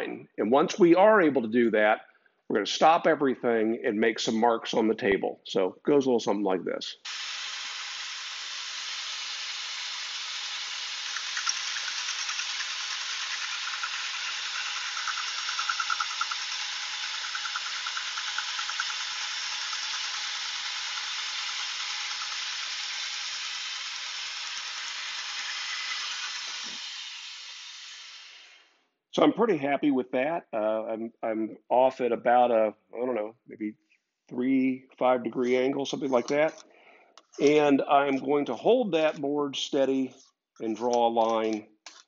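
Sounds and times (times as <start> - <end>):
bandsaw running: 7.1 - 28.6.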